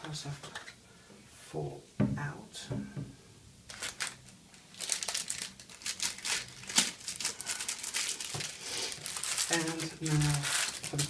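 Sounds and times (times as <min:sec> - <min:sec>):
plastic sleeves crinkling: 0:03.7 - 0:11.0.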